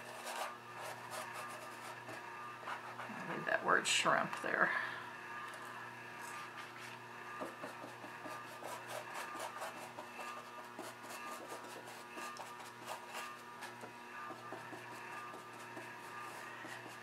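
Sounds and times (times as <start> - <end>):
faint steady hum: 0.0 - 17.0
paintbrush scrubbing gritty canvas: 8.4 - 13.8.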